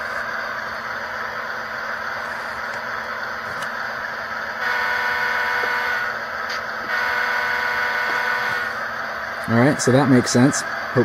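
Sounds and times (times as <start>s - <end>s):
diesel engine sound: 0.0s - 11.0s
model train horn blasts: 4.6s - 6.2s, 6.9s - 8.8s.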